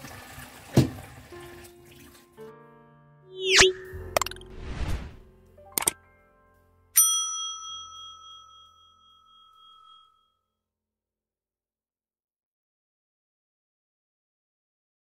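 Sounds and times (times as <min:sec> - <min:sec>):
bright bell ding: 0:07.0 - 0:10.2.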